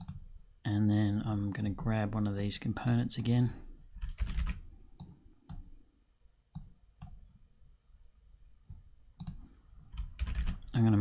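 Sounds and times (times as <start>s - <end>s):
computer mouse clicks: 9.2s - 10.8s.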